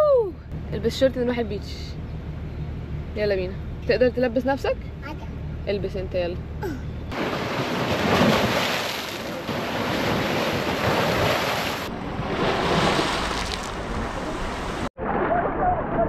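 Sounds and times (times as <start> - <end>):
small waves breaking on rocks: 7.1 - 14.9.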